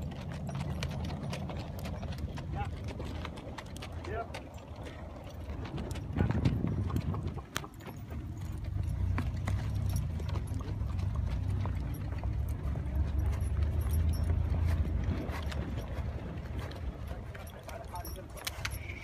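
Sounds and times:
horse hoofbeats on dirt: 0.0 - 19.0.

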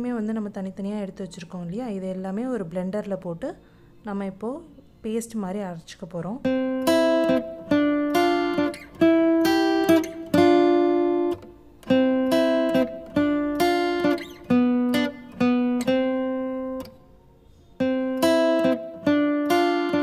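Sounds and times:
acoustic guitar picking melody: 6.4 - 20.0.

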